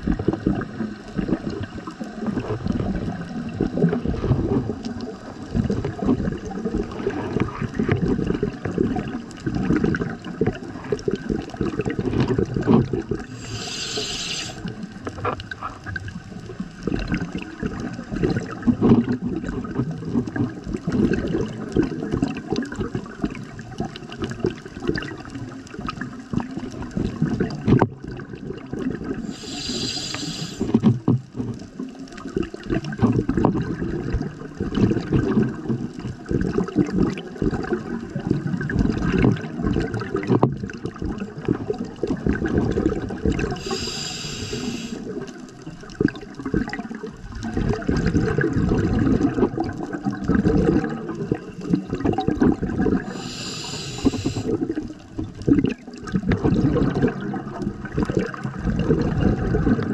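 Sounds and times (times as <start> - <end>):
gurgling exhaled bubbles: 0.0 - 59.9
regulator inhalation hiss: 13.3 - 14.7, 29.2 - 30.7, 43.6 - 45.0, 53.0 - 54.6.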